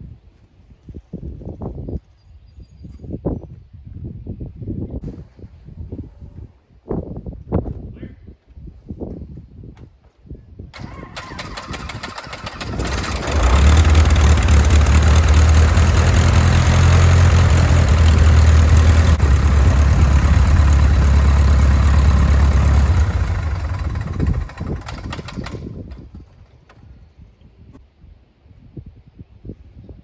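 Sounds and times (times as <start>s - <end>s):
airplane engine running: 10.8s - 26.4s.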